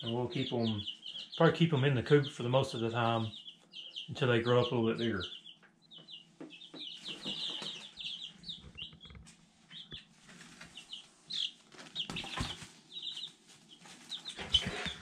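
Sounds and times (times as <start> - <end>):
chicks peeping: 0.0 - 15.0
chick wings flapping: 11.7 - 15.0.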